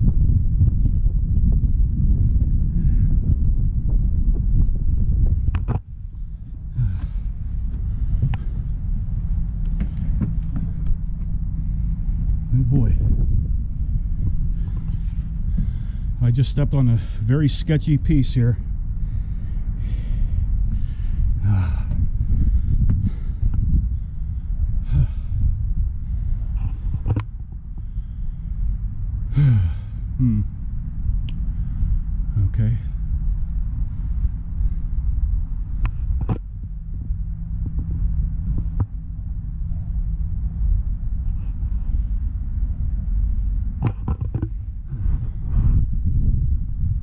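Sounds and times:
low outdoor rumble: 0.0 - 47.0
man gasping grunts: 6.7 - 7.2, 21.4 - 22.0, 29.3 - 30.6.

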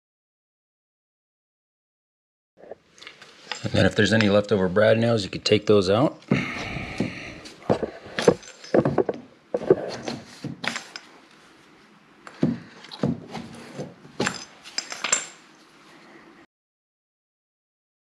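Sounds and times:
metal tool clinking against trim: 8.2 - 9.1.

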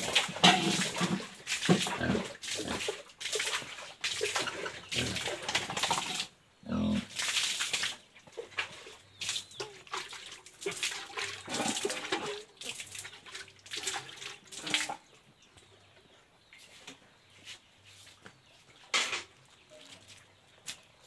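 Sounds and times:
water splashing on floor: 0.0 - 6.3, 7.1 - 8.0
pig grunting: 1.8 - 2.9, 4.6 - 5.4, 6.6 - 7.1.

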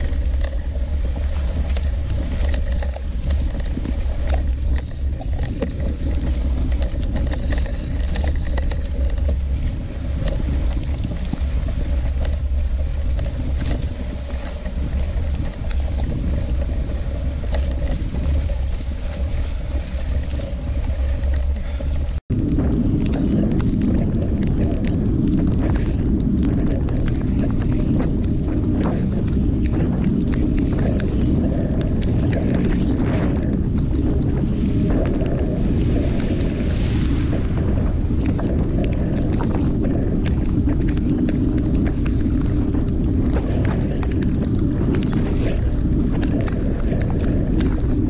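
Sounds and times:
bike rattling and knocking: 0.0 - 36.7
bike tyre noise: 0.0 - 48.0
wind rumble on microphone: 0.0 - 48.0.

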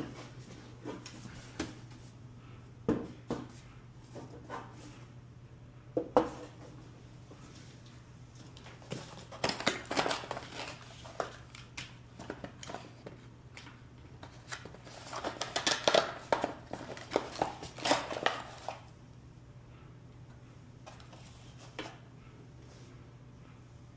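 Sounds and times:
steady low hum: 0.0 - 9.4, 18.5 - 23.9
cardboard packaging rustling: 8.4 - 18.9.

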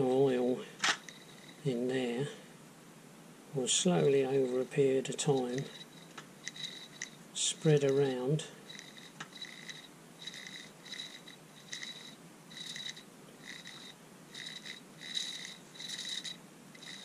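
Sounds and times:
faint gear squeak: 5.2 - 7.2, 8.7 - 17.0.

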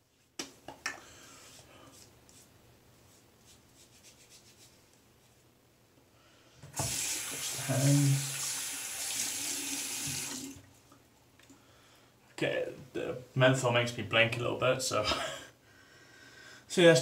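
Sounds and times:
tap water running into basin: 6.7 - 10.7.

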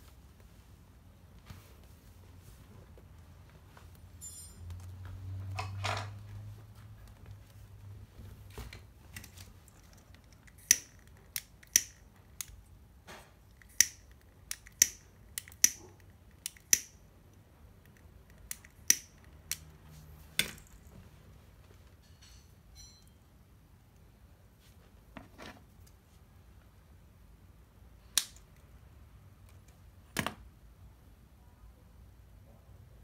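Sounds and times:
lighter clicking: 13.6 - 15.8.

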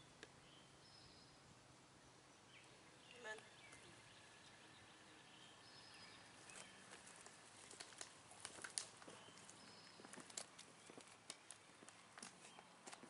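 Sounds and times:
faint outdoor ambience: 0.0 - 13.0
footsteps on gravel and leaves: 6.3 - 13.0.

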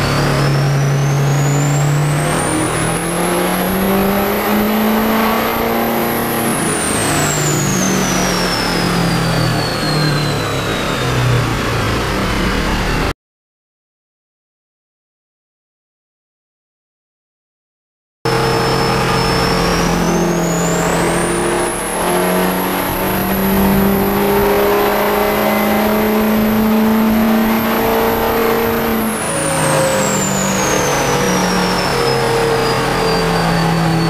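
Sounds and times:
diesel engine at full throttle: 0.0 - 13.1, 18.3 - 34.0
high whine: 18.3 - 34.0.

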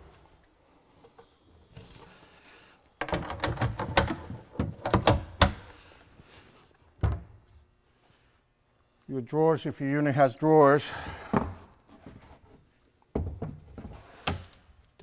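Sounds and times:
hinge clicks and knocks: 3.0 - 5.7.

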